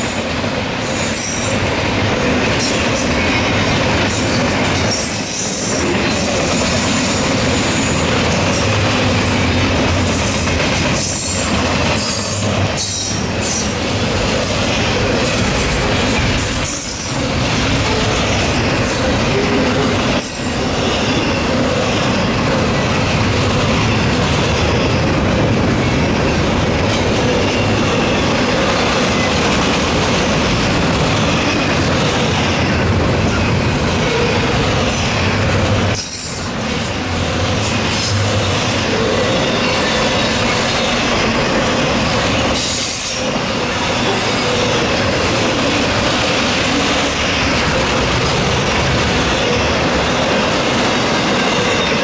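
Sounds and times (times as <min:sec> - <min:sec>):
freight train wheels rumbling and rattling: 0:00.0 - 0:52.0.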